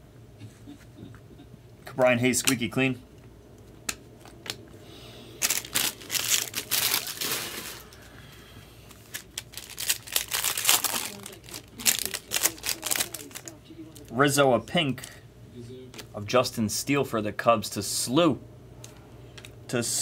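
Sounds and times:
card pack wrappers crinkling and tearing: 5.4 - 8.2, 8.9 - 15.2.

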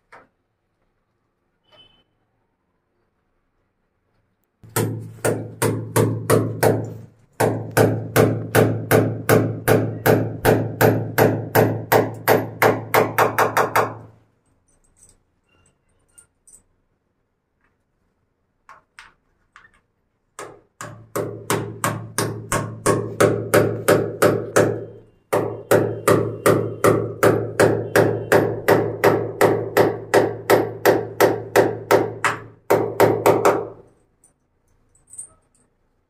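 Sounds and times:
hand hammer striking: 4.6 - 14.1, 20.4 - 33.9.

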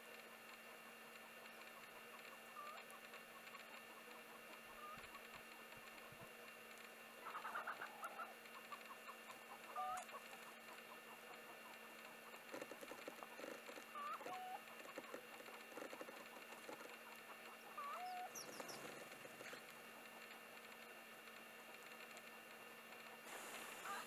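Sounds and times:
sparrows pecking on hard ground: 8.6 - 20.8.

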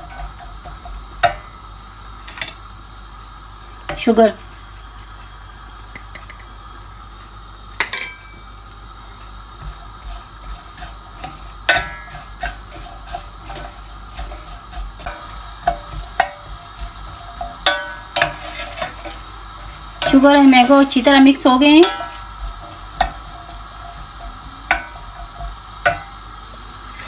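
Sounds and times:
sharp clink: 7.8 - 8.4
wooden spoon scraping metal pan: 9.6 - 26.2.

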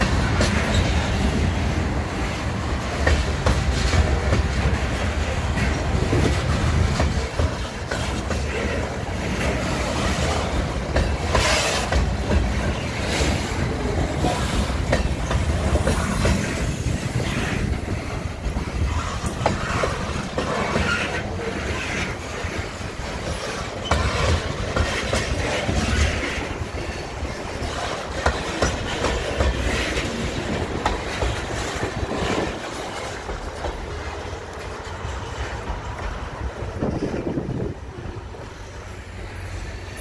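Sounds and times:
wheels clicking over rail joints: 0.0 - 38.7
freight train rumble: 0.0 - 40.0.

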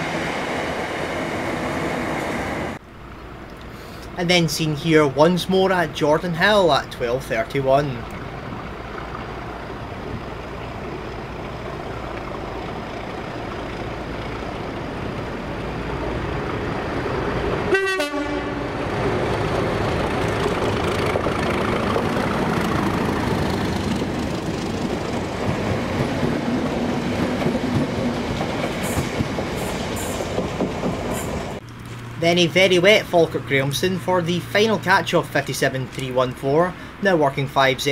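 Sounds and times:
diesel locomotive passing: 0.0 - 37.8
train horn blast: 17.7 - 19.0.

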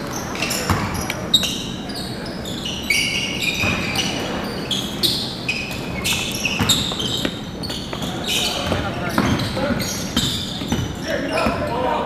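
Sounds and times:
sneakers squeaking on hardwood: 0.0 - 12.0
basketball bouncing: 0.6 - 1.0, 6.5 - 11.7.

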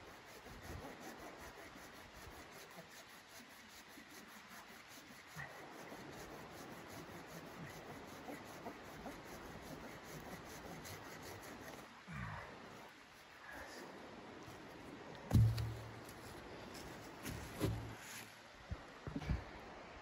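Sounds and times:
saw rasping into wood: 0.0 - 11.8.

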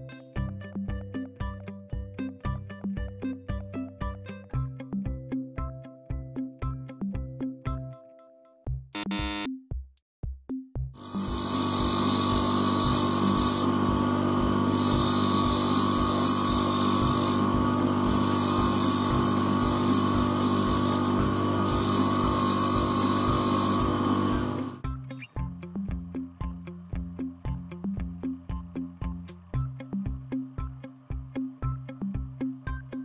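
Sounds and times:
drill bit hissing against grinder: 11.0 - 24.8
grinder wheel running: 11.0 - 24.8.

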